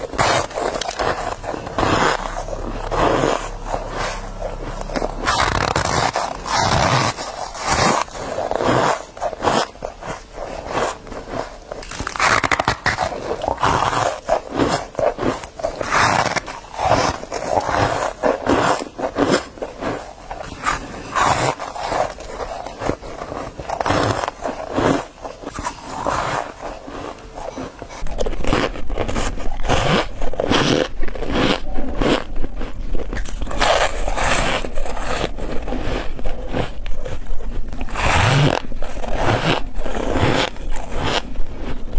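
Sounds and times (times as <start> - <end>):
low hum: 0.0 - 29.6
squeaky crunching of ice: 0.0 - 41.9.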